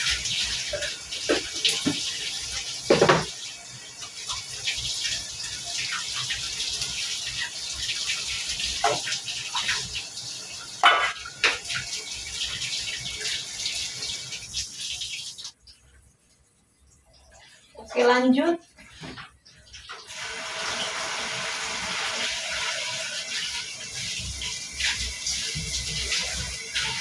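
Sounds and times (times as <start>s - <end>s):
containers clattering in sink: 0.6s - 2.1s, 2.9s - 3.4s, 10.8s - 11.8s
tap running into steel sink: 2.9s - 3.4s.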